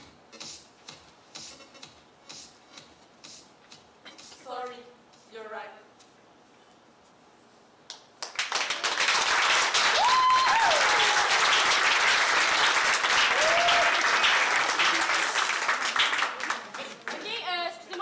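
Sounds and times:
audience applause: 0:08.2 - 0:17.4.

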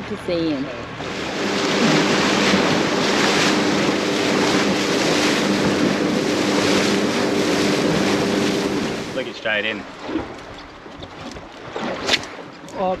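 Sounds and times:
boat engine hum: 0:00.0 - 0:13.0
water along hull: 0:00.0 - 0:13.0
wind on microphone: 0:00.7 - 0:09.3.

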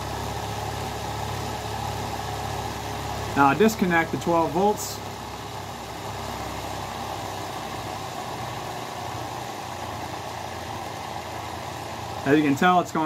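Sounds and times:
small electric motor running: 0:00.0 - 0:12.8.

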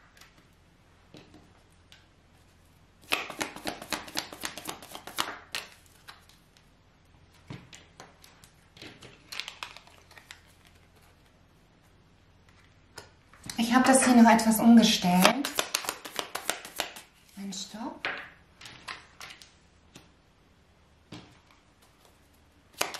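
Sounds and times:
cards being shuffled: 0:03.0 - 0:06.4, 0:15.2 - 0:17.4, 0:21.5 - 0:22.9.

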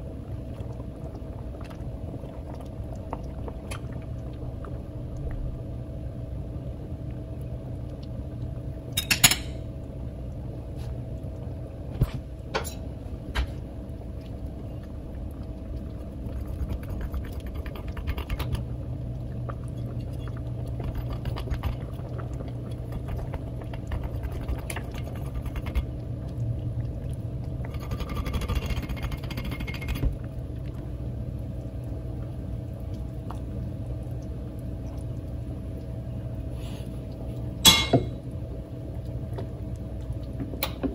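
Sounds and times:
soup bubbling in a pot: 0:00.0 - 0:40.9
metal fork clinking on pot: 0:09.0 - 0:09.6, 0:37.6 - 0:38.1.

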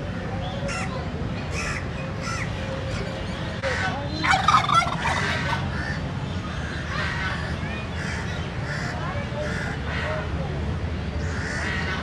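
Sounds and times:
poultry calling: 0:04.2 - 0:06.0.

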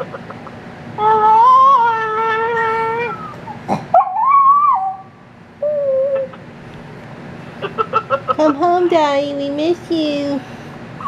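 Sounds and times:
dog howling: 0:01.0 - 0:06.4.

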